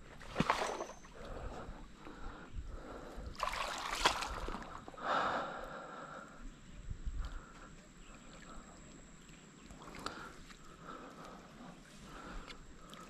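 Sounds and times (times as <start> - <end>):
water sloshing and splashing: 0.0 - 2.2, 3.2 - 5.0, 8.0 - 13.0.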